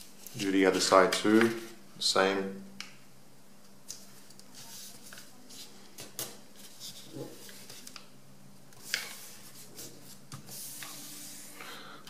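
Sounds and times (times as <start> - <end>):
faint steady hum: 0.0 - 12.0
paper rustling: 4.0 - 8.1.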